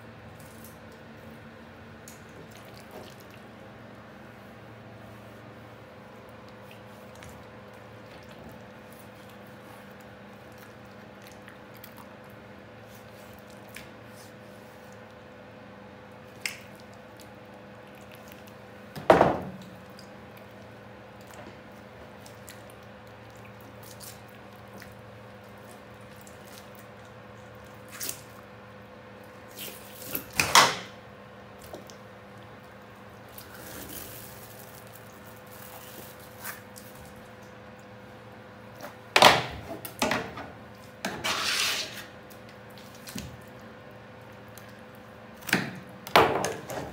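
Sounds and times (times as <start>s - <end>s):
wet handling noises: 41.9s - 46.9s.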